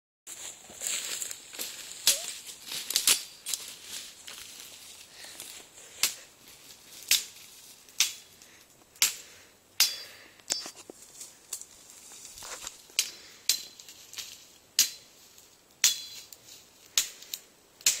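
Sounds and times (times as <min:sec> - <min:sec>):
machete chopping brush: 0:07.0 - 0:07.4, 0:08.0 - 0:08.3, 0:15.8 - 0:18.0.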